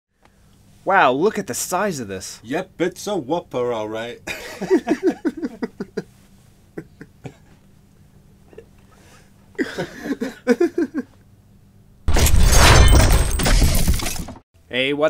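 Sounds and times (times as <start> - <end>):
glass shattering crash: 12.1 - 14.4.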